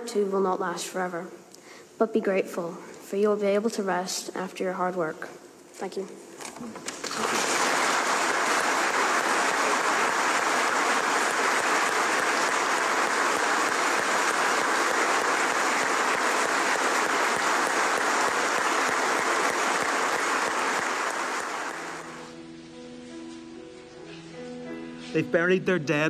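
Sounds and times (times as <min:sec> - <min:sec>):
congregation applauding: 0:06.9 - 0:22.3.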